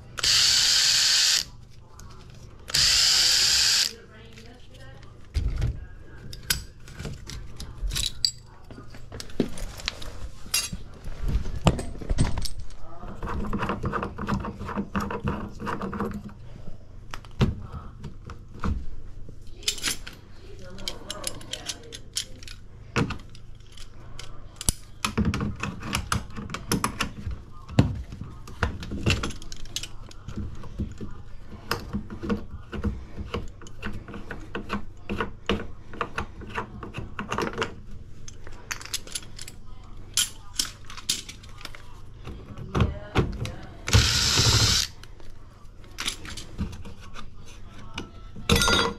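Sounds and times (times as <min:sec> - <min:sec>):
hand tools clinking on metal: 0:48.5 - 0:48.9.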